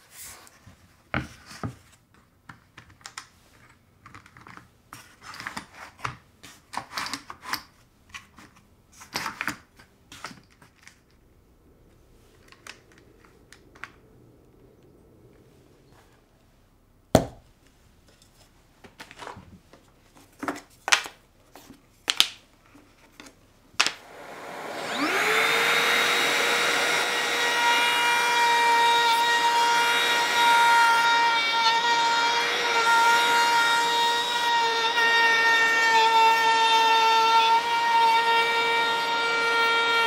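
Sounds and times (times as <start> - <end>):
trim router whining: 23.8 - 40.0.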